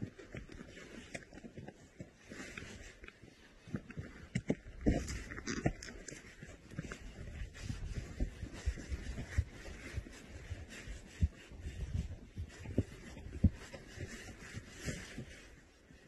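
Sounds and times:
irregular low thumps and rumble: 3.0 - 15.8.

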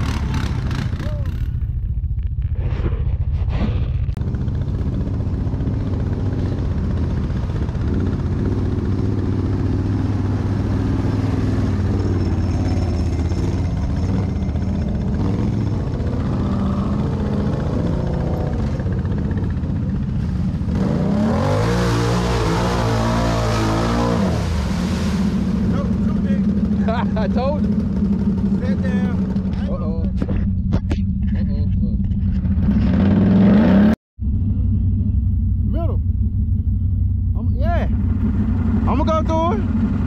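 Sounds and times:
quad engine revving: 0.0 - 1.7, 4.2 - 34.0
churned water and mud: 4.1 - 31.4.

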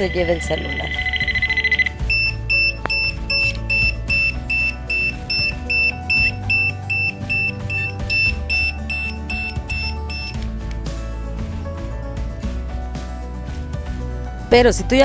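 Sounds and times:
high electronic beeps: 0.0 - 10.4
background music: 0.0 - 15.0.

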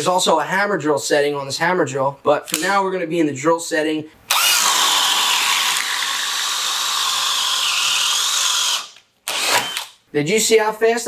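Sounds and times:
drill bit cutting wood: 4.3 - 9.9
drill motor whine: 4.3 - 9.9.

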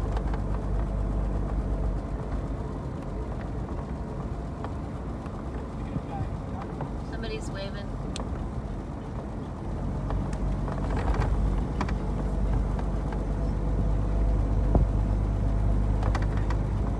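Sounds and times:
light knocks and rattles: 0.0 - 7.2, 8.1 - 13.6, 14.6 - 16.9
car engine running: 0.0 - 16.9.

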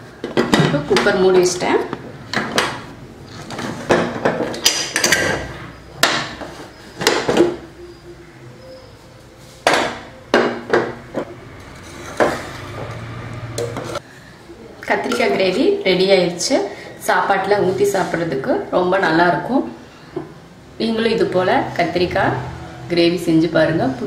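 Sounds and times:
metal pot and lid clanking: 3.5 - 6.3.

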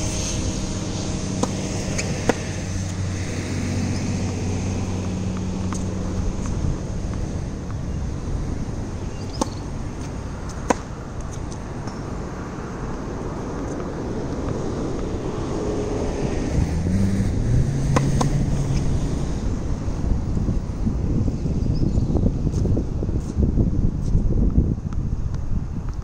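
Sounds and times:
tennis racquets striking balls: 0.0 - 15.2, 17.8 - 18.9
vehicle engine passing: 0.0 - 21.6
road traffic: 0.0 - 26.0
wind noise: 0.0 - 26.0.

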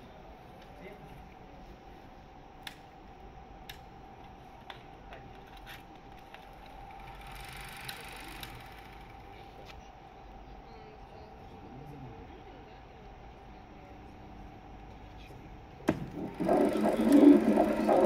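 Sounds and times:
film projector humming: 6.4 - 9.3, 15.9 - 18.0.

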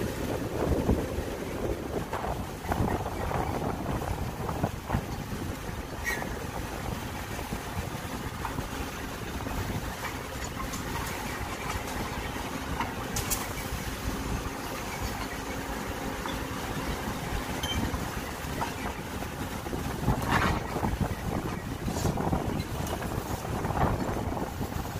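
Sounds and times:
diesel engine running: 0.0 - 24.9.

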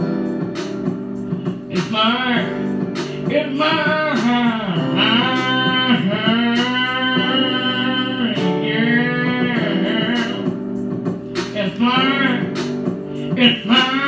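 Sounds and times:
man singing country song: 3.3 - 10.5.

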